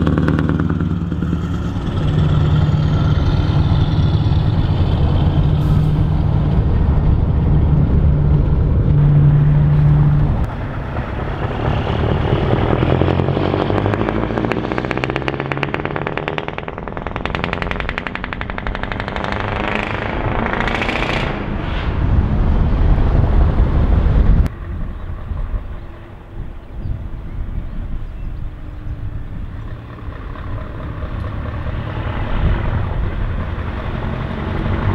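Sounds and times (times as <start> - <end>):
truck engine drone: 0.0 - 34.9
truck exhaust accelerating: 0.0 - 34.9.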